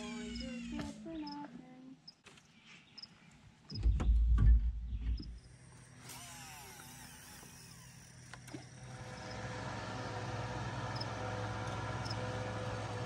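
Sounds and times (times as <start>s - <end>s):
outboard motor running: 5.7s - 13.0s.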